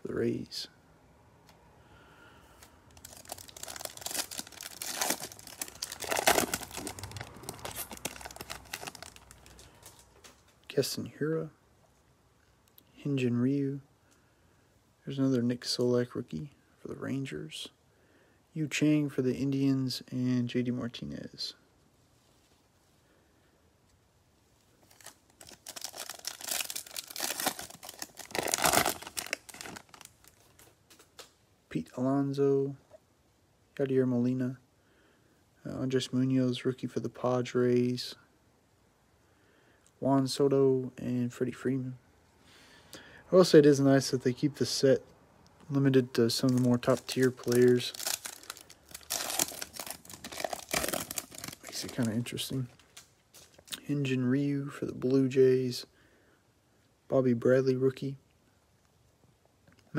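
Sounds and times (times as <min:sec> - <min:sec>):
card pack wrapper tearing and crinkling: 0:02.9 - 0:10.4, 0:24.8 - 0:31.3, 0:46.3 - 0:53.8.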